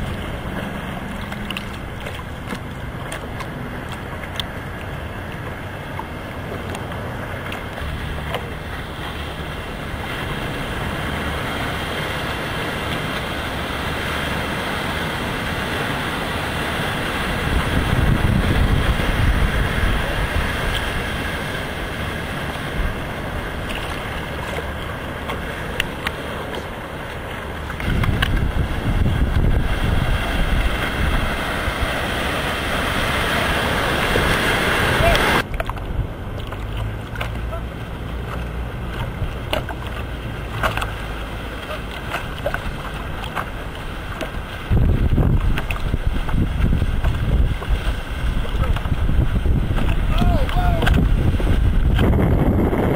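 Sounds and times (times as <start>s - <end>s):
boat motor running: 0.0s - 52.9s
waves washing: 0.0s - 52.9s
wind gusting on microphone: 13.3s - 36.4s, 42.2s - 52.9s.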